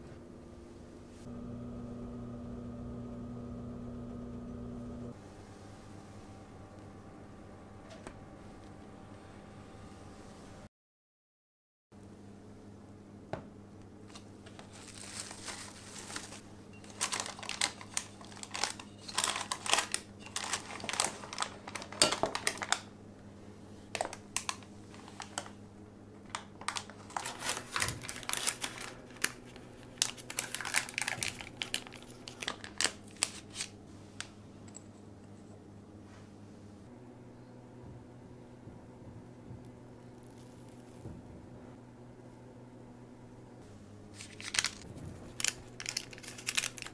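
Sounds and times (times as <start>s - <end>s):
plastic wrap and paper crinkling: 14.1s - 22.9s, 23.9s - 25.6s, 26.3s - 33.8s, 40.1s - 41.1s, 44.1s - 46.9s.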